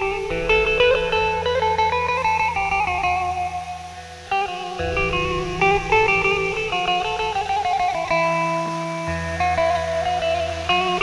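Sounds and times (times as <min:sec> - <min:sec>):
plucked guitar melody: 0:00.0 - 0:11.0.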